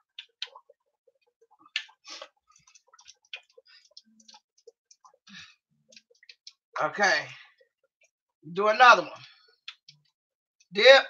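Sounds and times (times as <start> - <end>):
fish frying in hot oil: 0.0 - 6.7.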